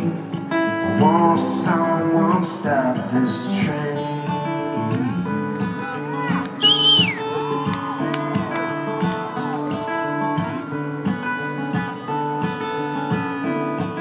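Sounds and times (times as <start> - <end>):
acoustic guitar strumming: 0.0 - 14.0
loud high whistle: 6.6 - 7.3.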